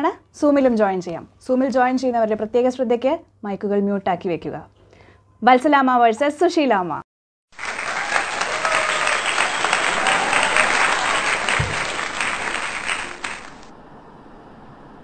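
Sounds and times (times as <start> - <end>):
crowd applause: 7.6 - 13.7.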